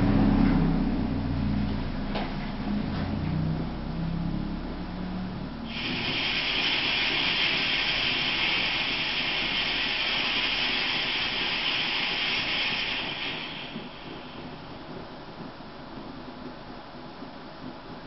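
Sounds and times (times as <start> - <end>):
petrol stove burner hissing: 5.6 - 16.1.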